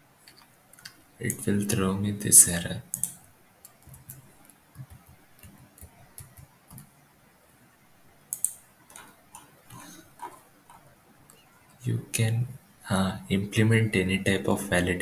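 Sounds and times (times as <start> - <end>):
computer mouse clicks: 2.9 - 6.9, 8.3 - 11.4.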